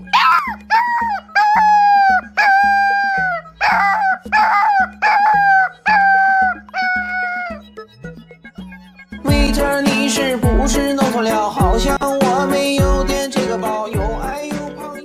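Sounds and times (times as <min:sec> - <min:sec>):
puppy howling: 0:00.0 - 0:07.6.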